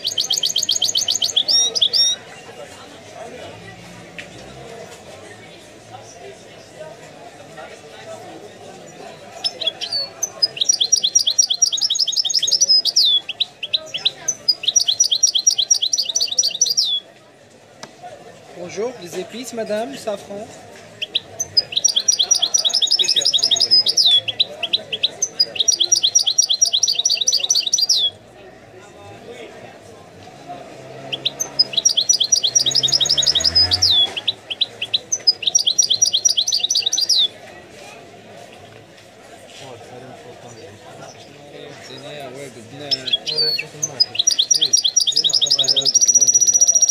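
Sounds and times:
goldfinch singing: 0.0 - 2.2, 9.3 - 17.0, 21.0 - 28.2, 31.1 - 37.3, 42.9 - 46.9.

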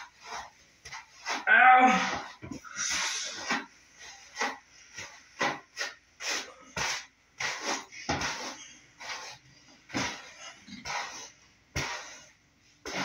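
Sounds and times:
hairbrush swishing through hair: 2.6 - 13.0.

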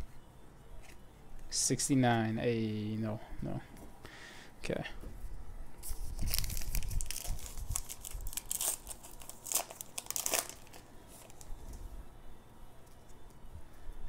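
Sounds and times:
foil wrapper tearing and crinkling: 5.8 - 11.5.

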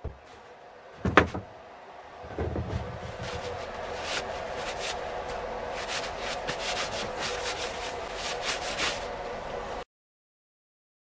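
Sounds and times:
paper towel wiping metal: 2.5 - 9.8.

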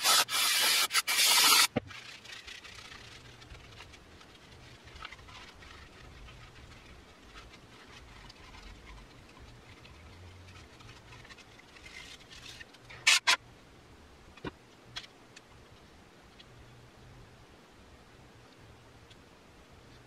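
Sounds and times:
faint scraping and rustling: 1.1 - 13.4.

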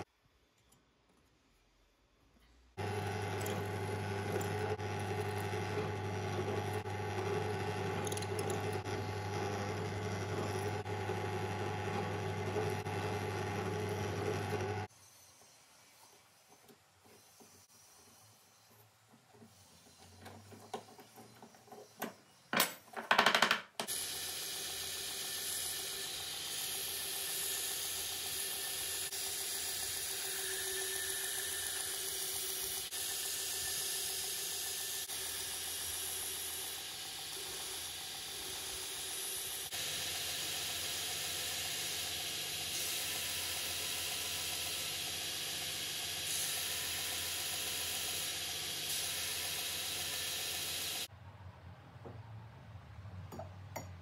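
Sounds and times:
belt grinder sanding hiss: 23.9 - 51.1.

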